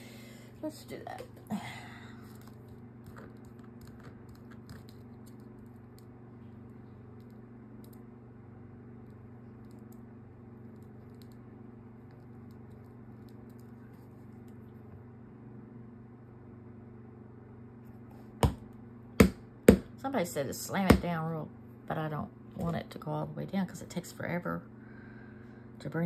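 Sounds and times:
low background hum: 0.0 - 26.0.

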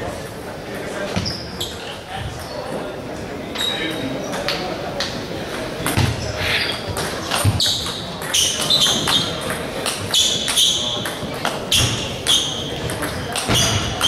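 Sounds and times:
table tennis balls clicking: 6.8 - 14.0.

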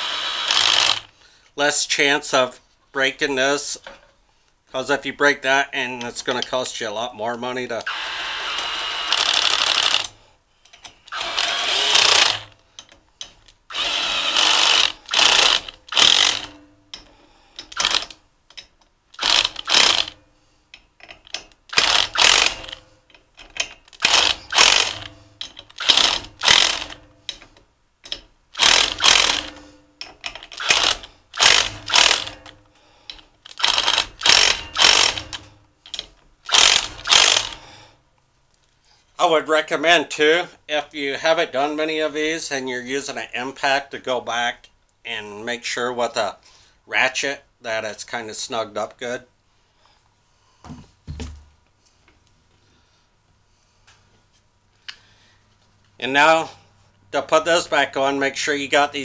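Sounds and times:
impact driver running in bursts: 0.0 - 1.1, 7.8 - 10.1, 11.1 - 12.5, 13.7 - 16.5, 17.7 - 18.1, 19.2 - 20.2, 21.7 - 22.8, 24.0 - 25.1, 25.7 - 27.0, 28.6 - 29.6, 30.6 - 32.5, 33.5 - 35.4, 36.5 - 37.6.

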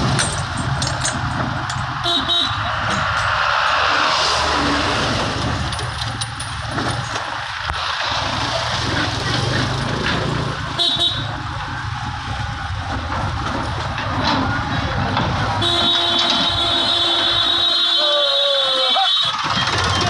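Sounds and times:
wind and road noise: 0.0 - 20.0
vehicle horn honk: 2.0 - 2.6, 15.6 - 19.5.

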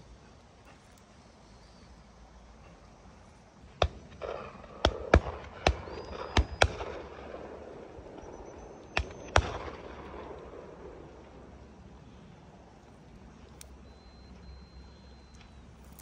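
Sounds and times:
shotgun shots: 3.8 - 10.8.

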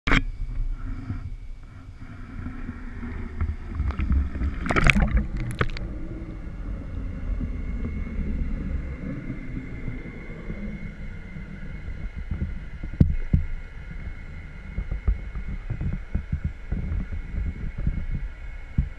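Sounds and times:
muffled water bubbling: 0.1 - 18.9
sharp knocks and splashes: 3.9 - 5.8.

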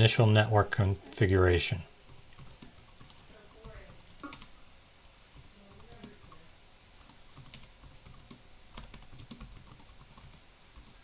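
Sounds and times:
faint computer keyboard typing: 2.1 - 6.4, 7.0 - 11.0.

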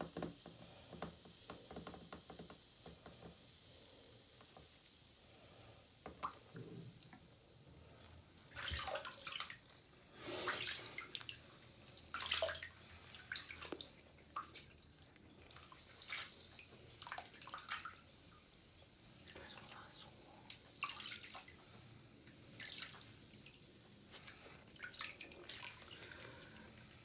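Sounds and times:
faint steady hiss: 0.0 - 27.0
bath water sloshing and splashing: 6.0 - 18.4, 19.2 - 27.0.

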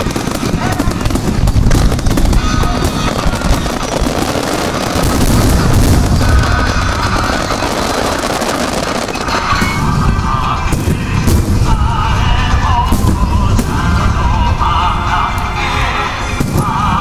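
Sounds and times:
crackle of firework stars: 0.0 - 12.0
fireworks shells booming: 0.0 - 17.0.

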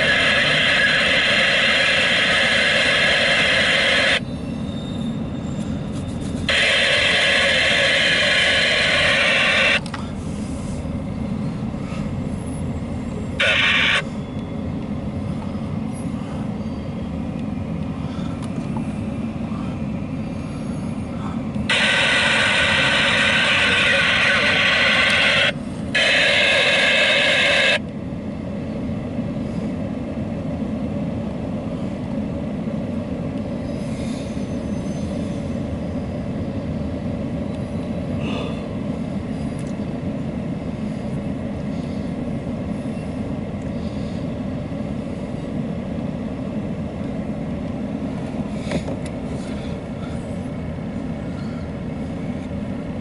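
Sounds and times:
loud hiss: 0.0 - 4.2, 6.5 - 9.8, 13.4 - 14.0, 21.7 - 27.8
freight train wheels rumbling: 0.0 - 53.0.

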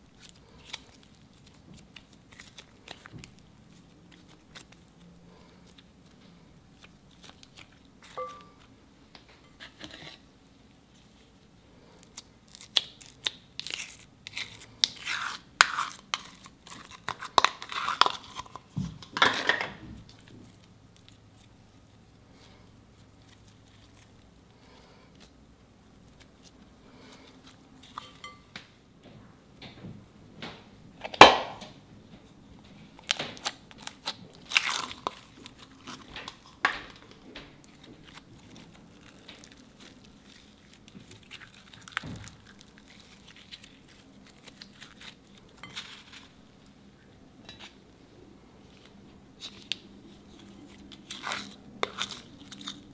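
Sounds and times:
slime squelching with foam beads: 37.6 - 46.4.

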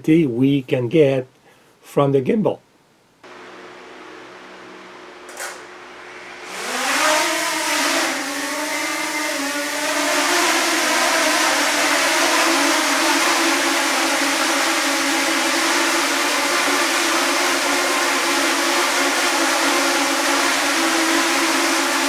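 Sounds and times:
steady hum: 2.8 - 22.0
drone propellers buzzing: 3.3 - 22.0.

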